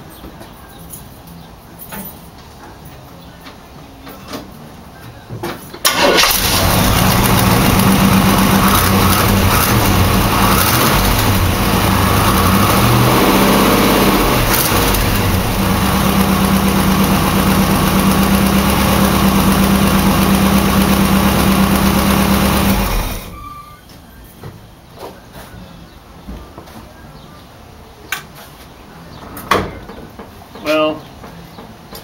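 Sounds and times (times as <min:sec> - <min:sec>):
engine revving and idling: 0:05.9 - 0:23.4.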